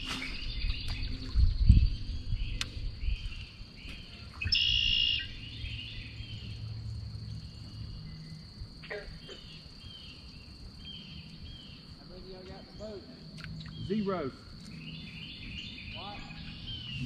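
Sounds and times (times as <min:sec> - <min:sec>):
bird singing: 0:00.0 - 0:17.0
insects droning: 0:00.0 - 0:17.0.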